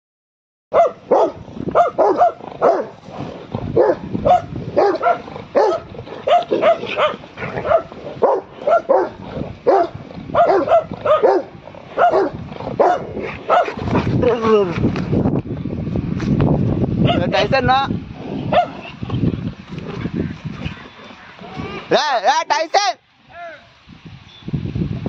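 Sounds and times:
dog barking: 0:00.7 - 0:03.0, 0:03.8 - 0:13.8, 0:17.0 - 0:17.3, 0:18.5 - 0:18.8.

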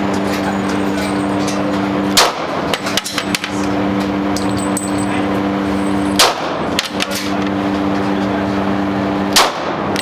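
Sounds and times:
low two-tone hum: 0:00.0 - 0:10.0
pistol shot: 0:02.2 - 0:02.6, 0:06.2 - 0:06.6, 0:09.4 - 0:09.9.

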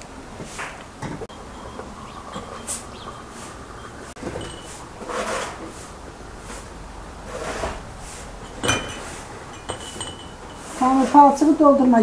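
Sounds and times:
glass clink: 0:01.3 - 0:04.8, 0:08.4 - 0:10.8
water pouring into glasses: 0:01.3 - 0:05.1.

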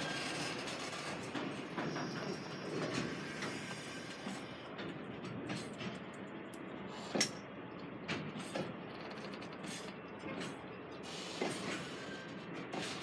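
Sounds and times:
train wheels rumbling on rail: 0:00.0 - 0:13.0
faint thin squeal: 0:01.8 - 0:04.2.

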